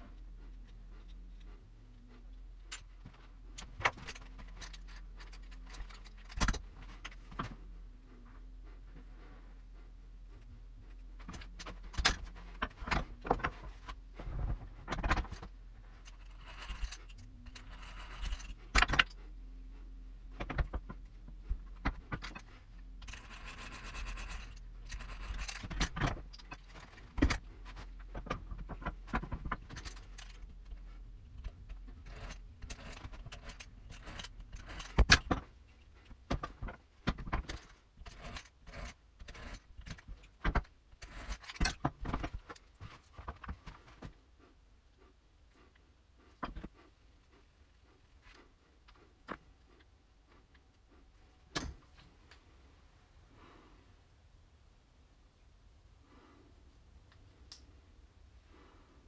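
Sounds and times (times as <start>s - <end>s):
scratchy noise: 23.0s - 25.6s
hand-cranked drill rattling: 31.4s - 35.4s, 36.3s - 40.3s.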